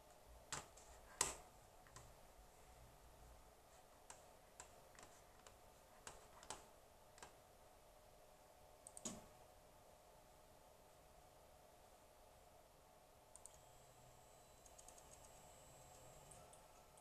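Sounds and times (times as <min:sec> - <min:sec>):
faint steady hum: 0:00.0 - 0:17.0
sharp clicks: 0:08.8 - 0:09.3, 0:13.3 - 0:13.7, 0:14.6 - 0:16.6.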